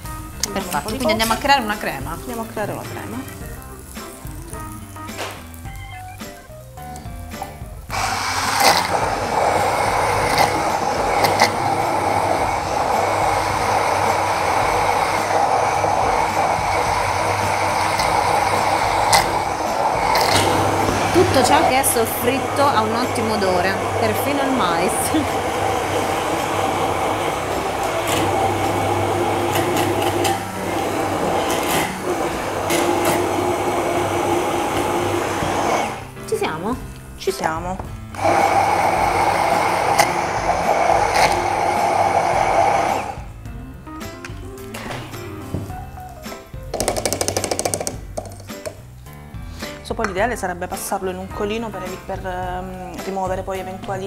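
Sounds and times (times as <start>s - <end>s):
immersion blender whirring: 7.4s - 36.2s, 37.9s - 43.4s, 46.7s - 48.8s.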